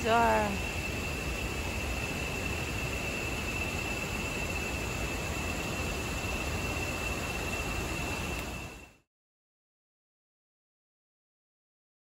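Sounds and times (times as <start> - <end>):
insect high-pitched drone: 0.0 - 9.0.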